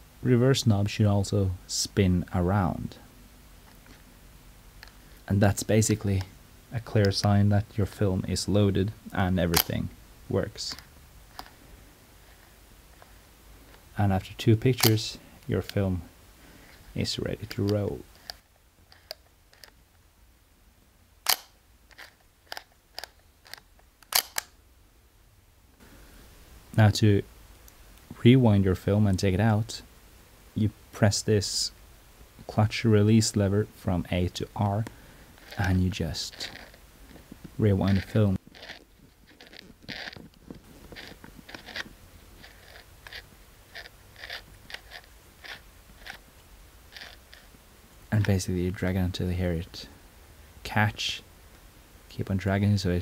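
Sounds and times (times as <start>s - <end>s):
camera rewind knob clicking: 21.3s - 24.5s, 40.9s - 46.2s
light camera clicks: 21.3s - 24.6s
camera shutter clicks: 24.0s - 24.5s.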